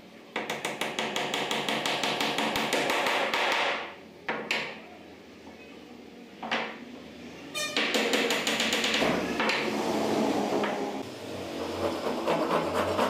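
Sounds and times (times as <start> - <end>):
hammer tapping wood: 0.4 - 4.8, 7.8 - 9.6.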